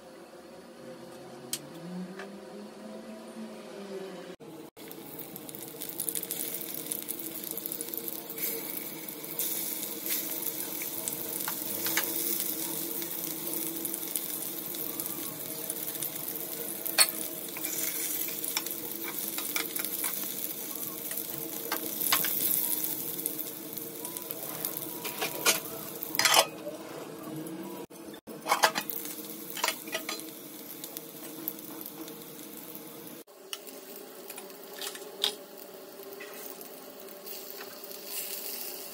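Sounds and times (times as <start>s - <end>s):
vegetables sizzling in oil: 4.8s - 38.9s
spatula scraping a pan: 25.0s - 26.6s.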